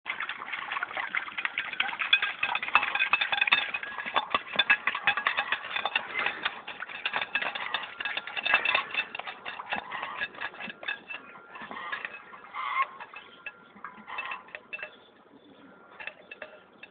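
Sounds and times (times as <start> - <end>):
dog licking plates: 0.2 - 13.3.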